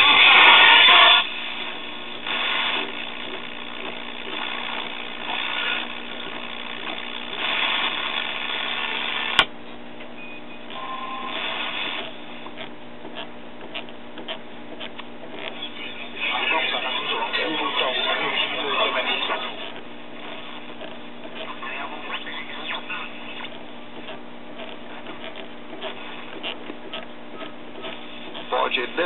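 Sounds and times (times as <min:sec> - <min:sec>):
radio whistles: 0:00.0 - 0:09.4, 0:10.2 - 0:12.7, 0:27.3 - 0:29.0
crackles: 0:00.0 - 0:29.0
radio static and hiss: 0:00.0 - 0:29.0.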